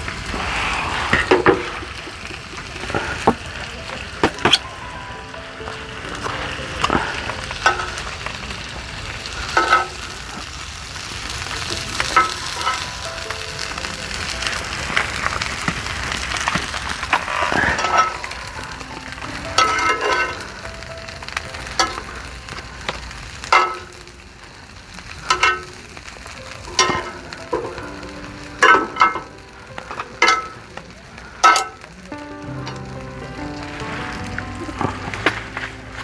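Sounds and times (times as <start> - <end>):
meat sizzling on a grill pan: 0.0 - 36.0
metal utensil clinking on pan: 12.1 - 12.9, 17.6 - 18.3, 19.6 - 20.4, 23.5 - 24.0, 25.3 - 25.8, 26.7 - 27.8, 30.2 - 30.6, 31.4 - 31.8.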